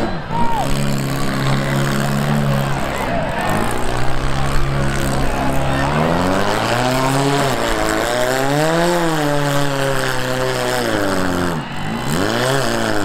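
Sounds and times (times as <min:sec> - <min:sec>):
car engine revving hard: 0:00.0 - 0:13.0.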